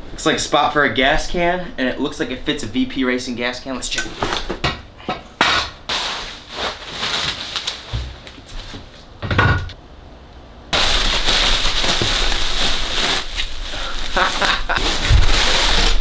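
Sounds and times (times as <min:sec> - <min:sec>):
plastic wrap crinkling: 0:05.9 - 0:09.0, 0:10.8 - 0:16.0.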